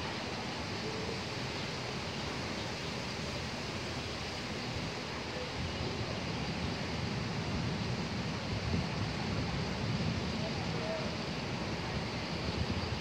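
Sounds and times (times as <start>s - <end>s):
wind through palm fronds: 0.0s - 13.0s
wind buffeting microphone: 3.0s - 13.0s.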